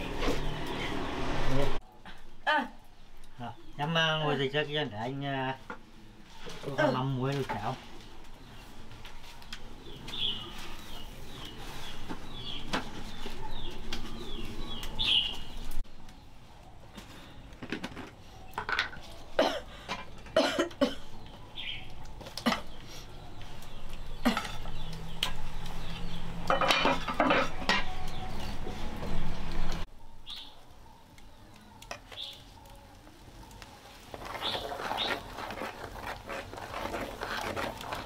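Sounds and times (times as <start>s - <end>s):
pan and utensils clattering: 26.4s - 28.0s.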